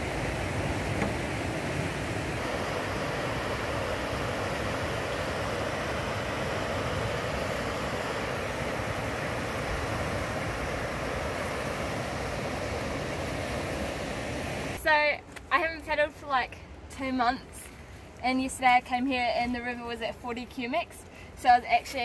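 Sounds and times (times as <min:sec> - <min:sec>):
river rapids rushing: 0:00.0 - 0:14.8.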